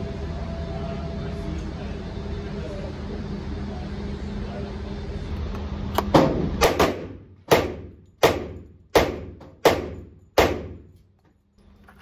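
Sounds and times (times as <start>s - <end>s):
pistol shots echoing indoors: 6.2s - 11.0s.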